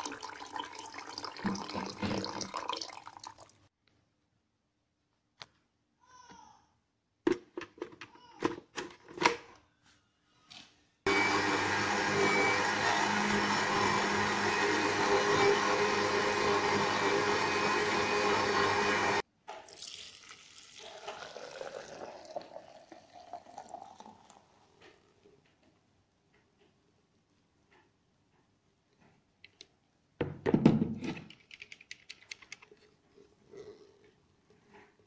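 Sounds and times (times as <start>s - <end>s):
juice splashing into strainer: 0.0s - 3.7s, 19.6s - 24.8s
blender running: 11.1s - 19.2s.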